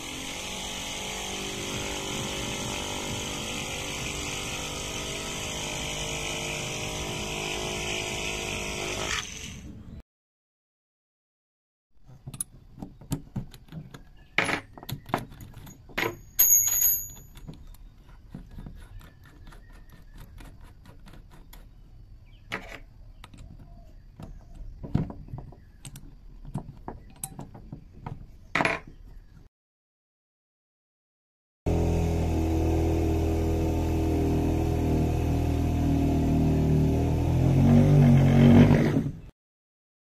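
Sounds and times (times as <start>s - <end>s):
ringing metal clink: 15.6s - 17.5s.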